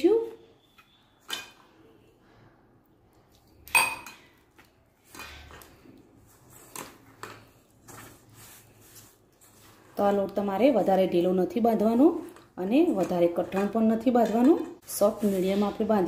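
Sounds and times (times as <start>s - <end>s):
soft rubbing of flour: 5.8s - 10.4s, 14.8s - 16.0s.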